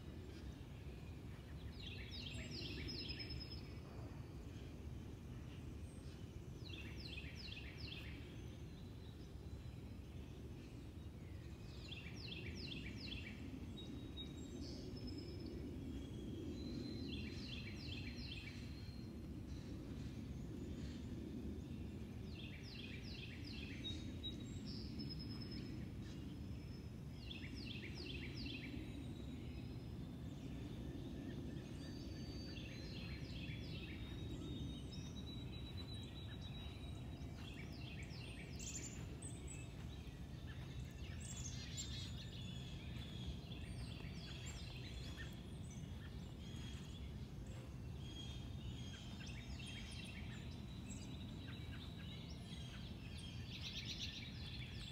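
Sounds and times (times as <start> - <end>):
songbird singing: 0.0 - 54.9
low background rumble: 28.6 - 54.8.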